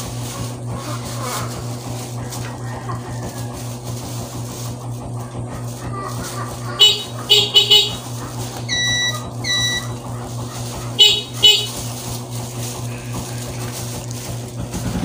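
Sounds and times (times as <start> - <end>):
steady low hum: 0.0 - 15.0
high-pitched horn toots: 6.7 - 10.1, 11.0 - 12.0
short squeaky chirps: 8.6 - 10.1.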